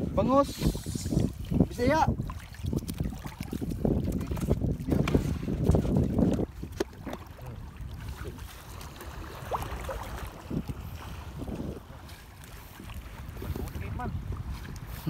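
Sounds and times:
wind on microphone: 0.0 - 15.0
water splashing and dripping: 0.8 - 15.0.

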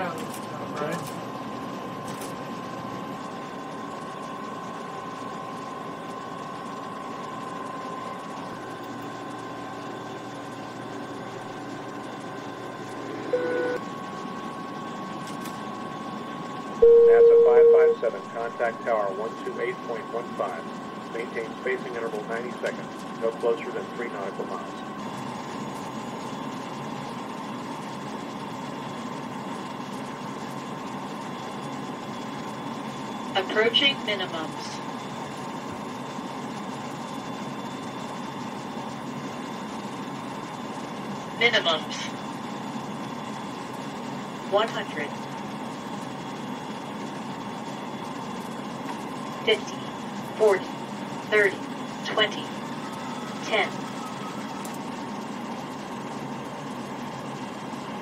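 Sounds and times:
airliner cockpit engine hum: 0.0 - 58.0
constant high whine: 0.0 - 58.0
short electronic beep: 16.8 - 18.0
thin high tone: 16.8 - 18.4.

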